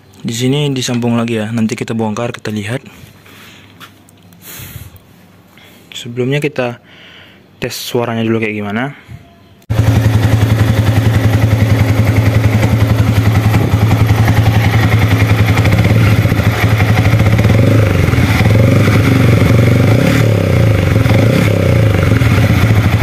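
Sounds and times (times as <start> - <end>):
motorcycle engine idling: 9.7 - 23.0.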